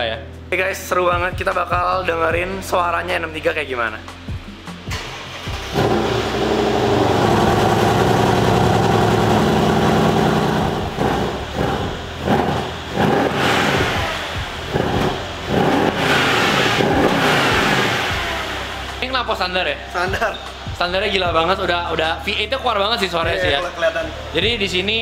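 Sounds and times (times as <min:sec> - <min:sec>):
car engine starting and idling: 0:04.8 - 0:19.8
engine revving in short blips: 0:05.0 - 0:18.7.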